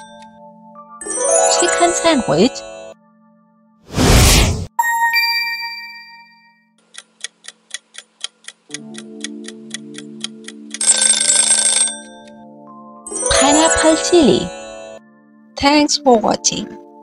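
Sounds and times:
chime: 4.8s - 6.8s
clock ticking: 6.8s - 11.2s
alarm clock bell ringing: 10.8s - 12.3s, 13.1s - 15.0s.

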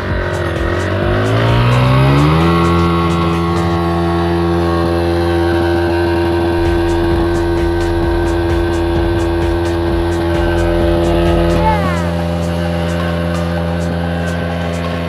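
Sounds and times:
motorcycle engine revving: 0.0s - 5.0s, 6.5s - 12.6s.

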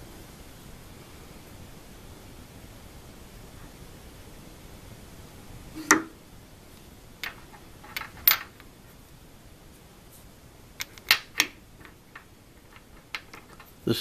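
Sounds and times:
metal clicks and knocks: 7.2s - 8.7s, 10.8s - 13.8s.

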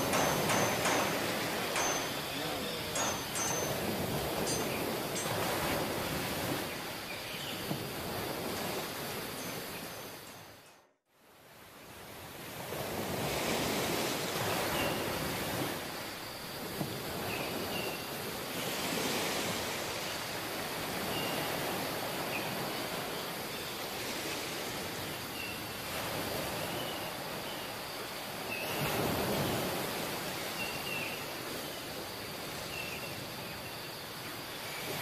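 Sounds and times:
sea surf rushing: 0.0s - 10.6s, 11.4s - 35.0s
faint high chirps: 0.1s - 5.4s.

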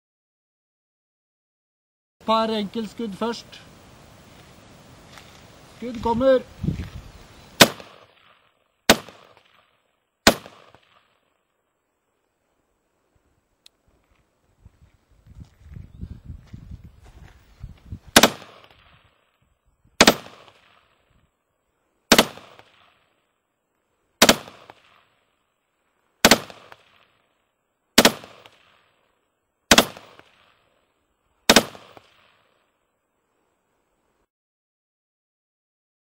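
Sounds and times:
rifle shots with echo: 7.6s - 11.3s, 18.2s - 18.9s, 20.0s - 21.0s, 22.1s - 23.0s, 24.2s - 25.1s, 26.2s - 27.2s, 28.0s - 28.9s, 29.7s - 30.6s, 31.5s - 32.6s.

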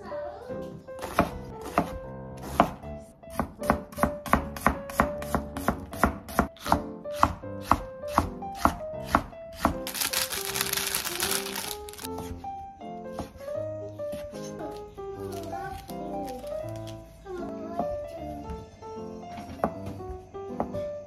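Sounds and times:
light background music: 0.0s - 21.0s
knife chopping on cutting board: 1.0s - 9.9s
plastic package crinkling: 9.8s - 12.1s, 15.3s - 17.0s.

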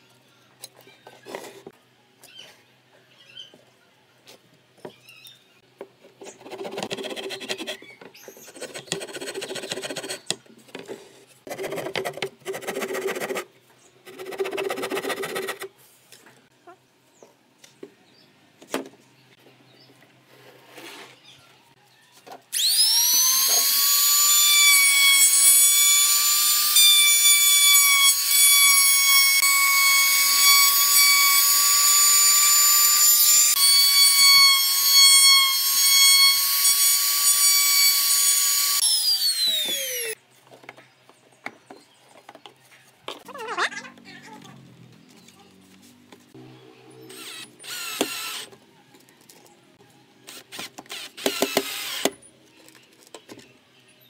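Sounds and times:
trim router whining: 22.6s - 40.2s, 47.1s - 48.5s.

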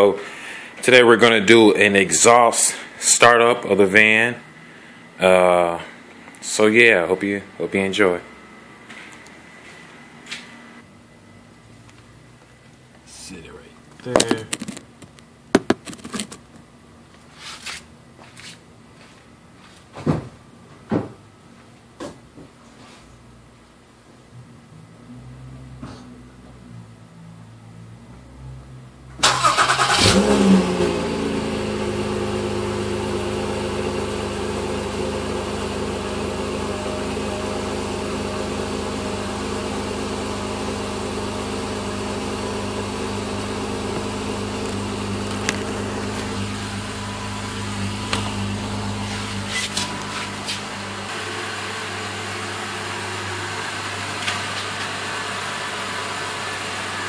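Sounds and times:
car engine starting and idling: 29.0s - 57.0s.

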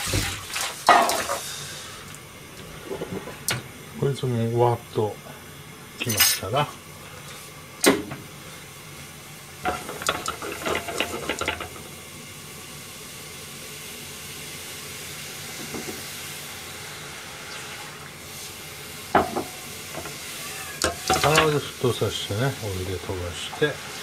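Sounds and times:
liquid bubbling and hissing in pan: 0.0s - 24.0s
utensils clinking against pans: 0.8s - 1.4s, 6.0s - 6.5s, 9.7s - 11.8s, 19.2s - 21.7s.

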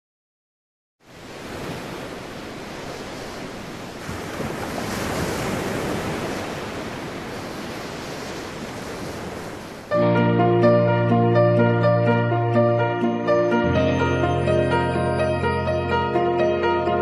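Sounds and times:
waves breaking on a beach: 1.0s - 9.9s.

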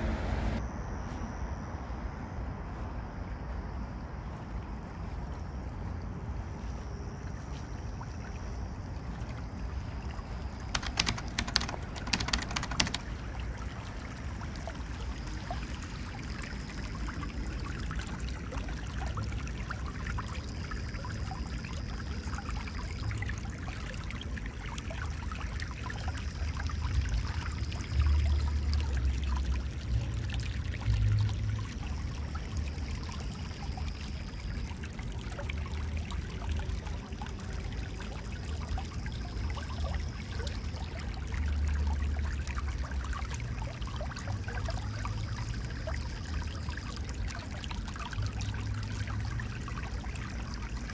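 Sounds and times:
stream trickling over stones: 4.3s - 50.9s
sharp clicks: 10.8s - 13.1s.

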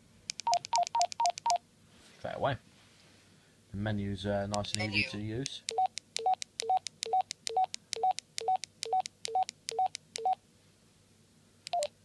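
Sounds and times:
radio keypad beeps: 11.7s - 11.9s.

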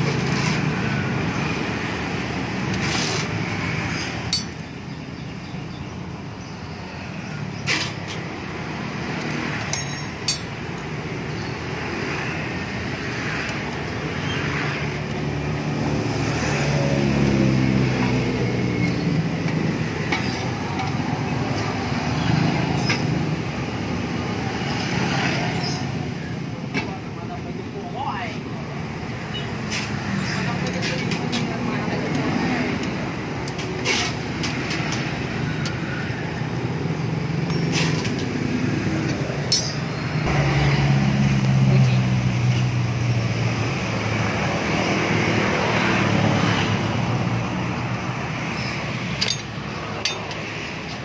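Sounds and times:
sharp metallic clinks: 4.2s - 4.9s, 9.2s - 11.0s, 39.5s - 40.0s, 48.6s - 50.4s.

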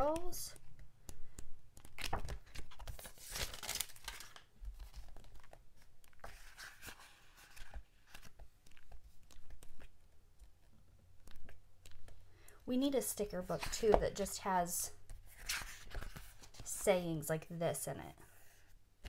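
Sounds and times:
pages rustling and crinkling: 0.6s - 12.2s, 15.0s - 16.8s.

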